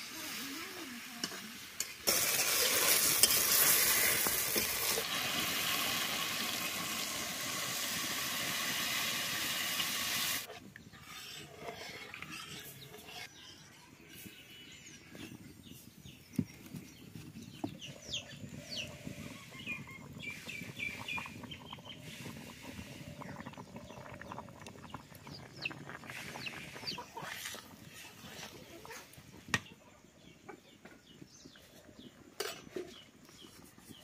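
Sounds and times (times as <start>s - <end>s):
chickens clucking: 25.1s - 31.0s.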